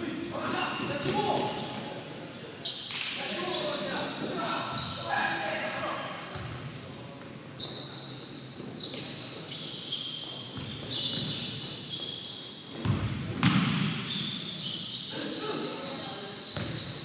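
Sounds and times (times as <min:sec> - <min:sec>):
shoes squeaking on court: 0:04.7 - 0:05.0, 0:07.6 - 0:17.0.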